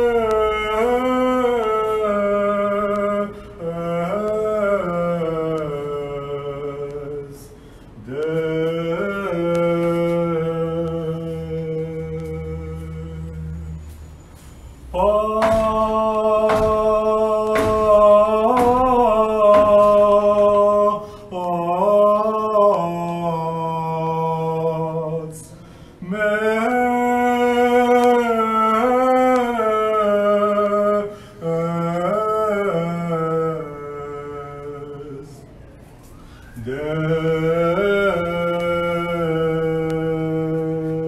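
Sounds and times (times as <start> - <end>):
faint clicks: 2.8 - 4.7.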